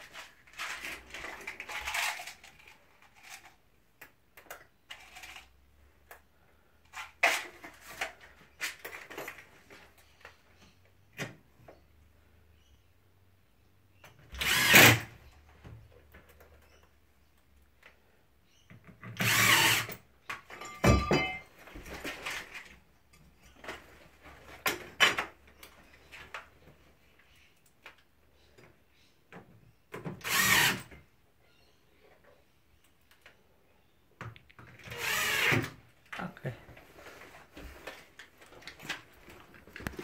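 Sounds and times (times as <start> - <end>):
cordless drill bursts: 14.4 - 15.1, 19.2 - 20.0, 30.2 - 30.9, 34.9 - 35.8.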